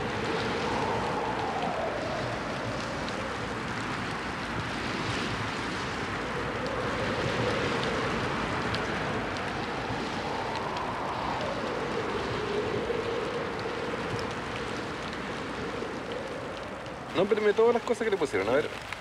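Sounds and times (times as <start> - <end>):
choppy water: 0.0 - 19.0
wind: 0.0 - 19.0.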